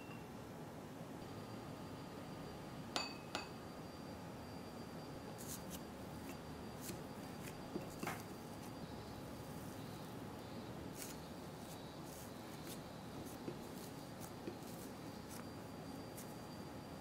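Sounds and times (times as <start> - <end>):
clinks on glass bowl: 3.0 - 3.6
fingers kneading dough scratchy ticks: 5.4 - 9.4, 10.9 - 17.0.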